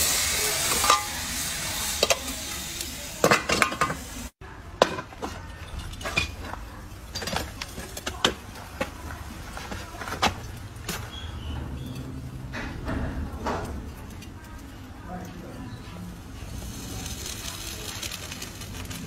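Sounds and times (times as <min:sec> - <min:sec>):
gas furnace hissing: 0:00.0 - 0:04.4, 0:05.0 - 0:19.0
iron tongs clinking on metal: 0:00.6 - 0:02.3.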